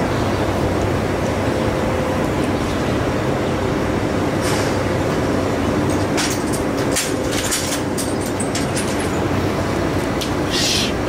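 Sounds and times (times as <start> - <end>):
machine rumble with low hum: 0.0 - 11.0
metallic clanks and rattles: 5.8 - 9.3.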